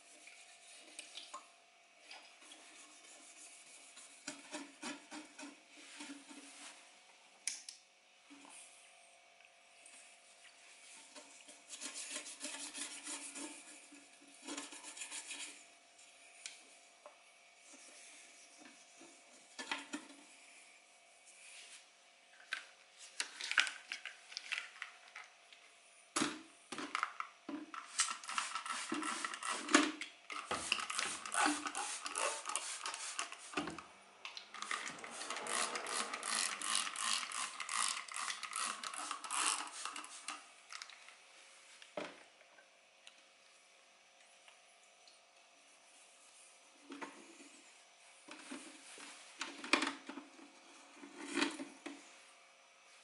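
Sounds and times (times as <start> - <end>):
small hard objects scraping: 34.6 - 40.2.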